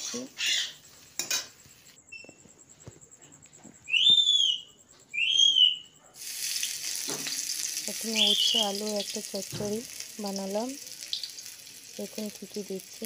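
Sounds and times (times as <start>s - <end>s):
loud whistled calls: 3.9s - 5.9s, 7.9s - 9.2s.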